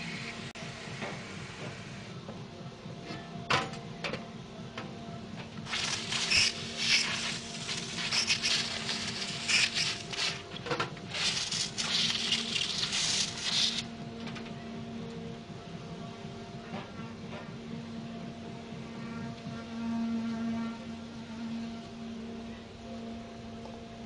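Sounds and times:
steady hum: 0.0 - 24.0
spray gun hissing: 5.7 - 10.4.

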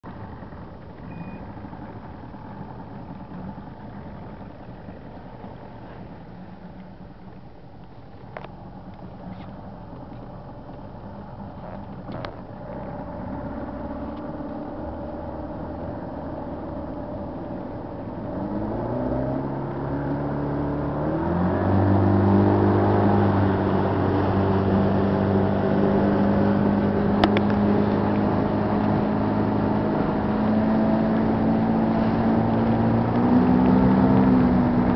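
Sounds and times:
outboard motor running: 22.2 - 34.9.

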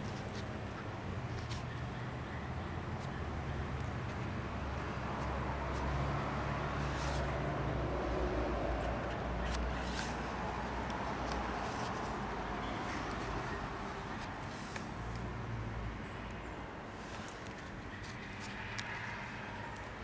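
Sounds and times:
paper pages turning: 6.8 - 7.4, 9.0 - 15.3, 17.0 - 19.1
paper rustling: 6.8 - 7.4, 9.0 - 15.3, 17.0 - 19.9.

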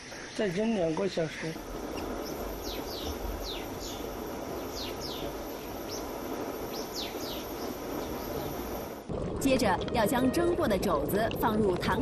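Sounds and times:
small birds chirping: 0.0 - 8.9
steady rushing noise: 1.3 - 9.2.

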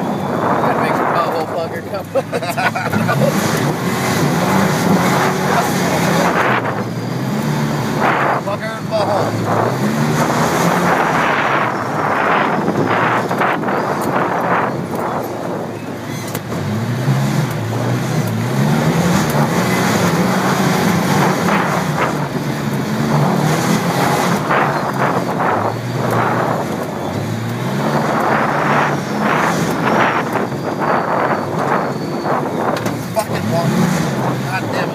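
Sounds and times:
steady rushing noise: 0.0 - 15.8
off-road vehicle engine revving: 0.0 - 34.9.

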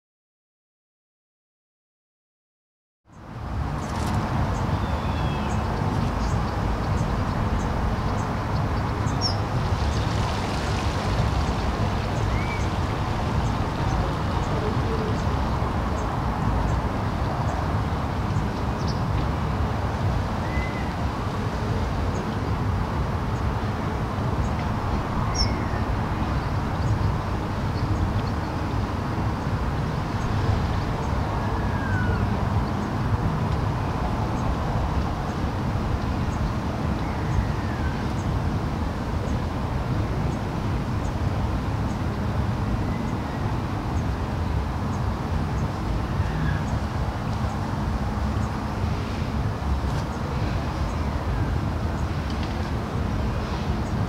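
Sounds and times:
low outdoor rumble: 4.2 - 17.4.

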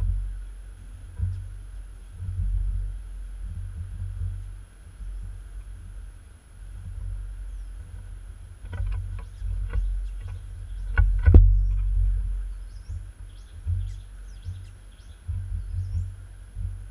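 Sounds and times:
faint bird chirps: 0.0 - 6.2, 6.8 - 8.2, 9.0 - 16.8
low rumble: 0.0 - 16.9
small clicks and knocks on metal: 8.6 - 11.9.

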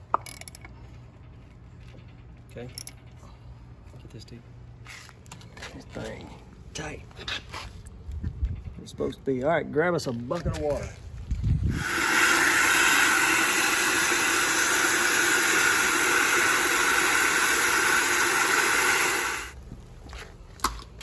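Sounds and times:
fuel pouring into tank: 11.7 - 19.6.

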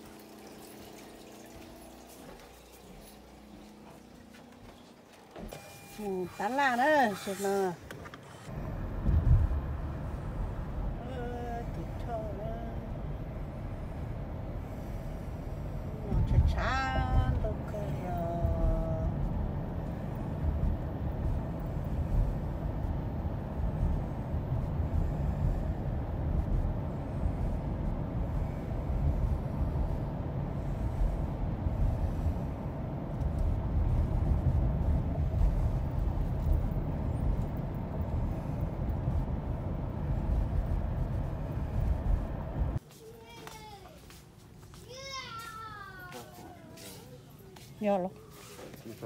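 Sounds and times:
car road and engine noise: 5.3 - 42.8.

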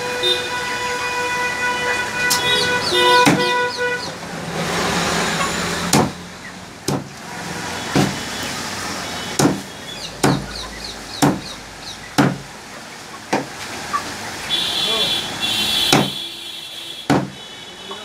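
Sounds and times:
cleaver chopping on wooden block: 3.2 - 3.5, 5.9 - 6.2, 6.9 - 7.1, 7.9 - 8.2, 9.4 - 10.5, 11.2 - 11.5, 12.2 - 12.5, 15.9 - 16.2, 17.1 - 17.4
rushing noise: 4.2 - 6.4.

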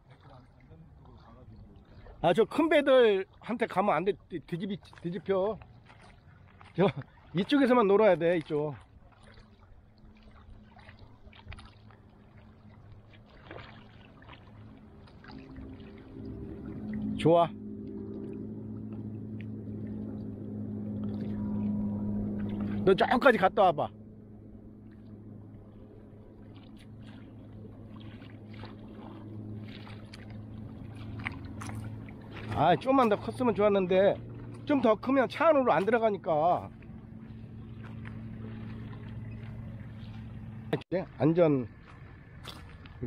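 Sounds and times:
kayak paddle splashing water: 0.0 - 43.0
low steady rumble: 0.0 - 43.0
steady low hum: 9.6 - 43.0.

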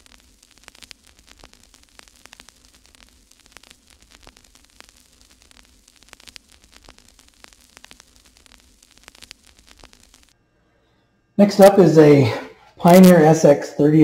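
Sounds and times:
crackling static clicks: 0.0 - 10.4
steady hiss: 0.0 - 10.4.

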